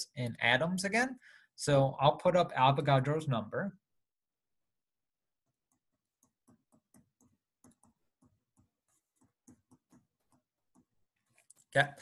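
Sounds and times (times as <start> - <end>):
stylus tapping on tablet screen: 5.4 - 11.4.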